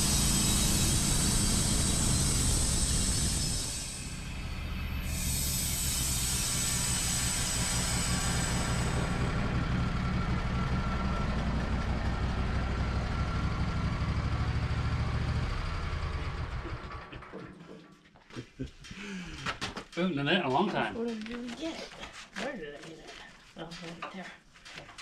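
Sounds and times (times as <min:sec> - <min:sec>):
high hiss: 0:00.0 - 0:09.6
sawmill engine running: 0:00.0 - 0:17.9.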